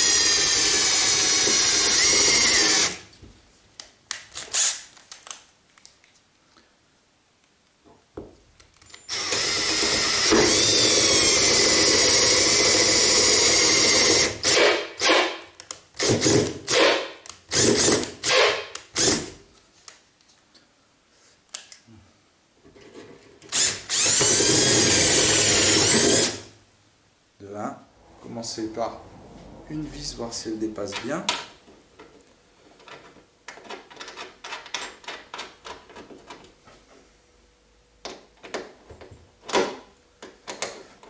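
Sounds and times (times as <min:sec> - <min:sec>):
cordless drill whining: 0:00.0 - 0:03.0, 0:09.0 - 0:15.2, 0:16.0 - 0:19.3, 0:23.5 - 0:26.5.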